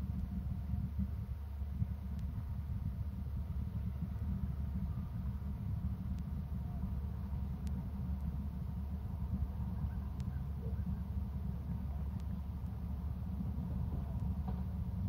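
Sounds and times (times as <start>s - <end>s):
steady low rumble: 0.0s - 15.0s
faint clicks: 2.1s - 2.4s, 5.3s - 15.0s.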